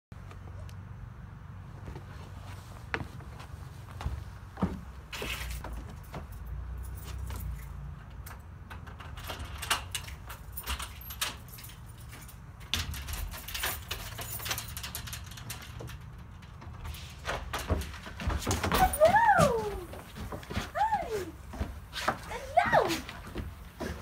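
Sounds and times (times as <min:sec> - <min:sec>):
footsteps on wooden deck: 0:01.7 - 0:07.5, 0:16.9 - 0:24.0
keys jangling and clicking: 0:05.2 - 0:18.1, 0:18.7 - 0:19.8.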